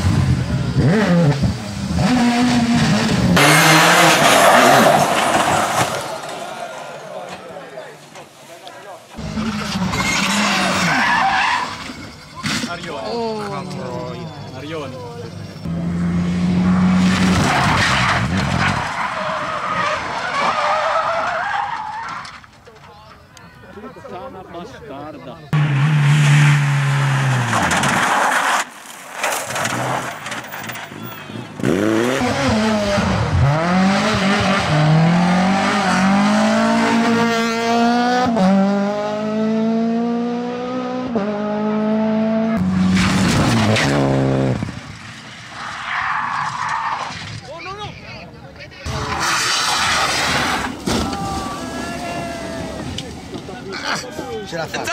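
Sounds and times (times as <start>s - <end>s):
rally car engine passing: 0.0s - 7.7s, 15.2s - 20.4s, 30.7s - 45.7s
tyres skidding: 0.0s - 23.7s, 25.5s - 54.9s.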